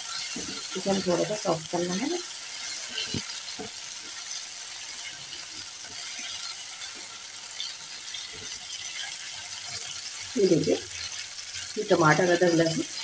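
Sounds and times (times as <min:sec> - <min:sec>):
vegetables sizzling in hot oil: 0:00.0 - 0:13.0.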